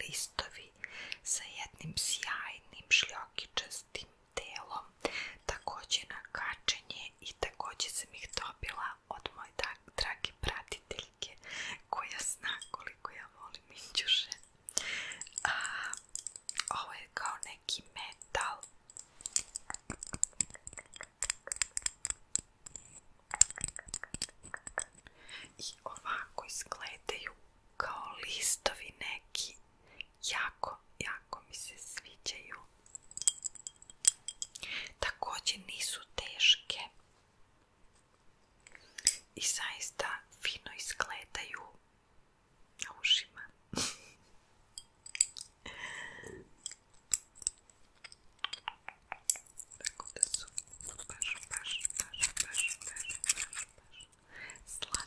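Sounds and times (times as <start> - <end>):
metal earrings clicking: 12.4 - 12.8, 14.2 - 16.8, 17.4 - 25.0, 32.8 - 34.7, 39.0 - 39.3, 44.8 - 45.6, 46.6 - 55.0
soft rustle: 16.4 - 20.9.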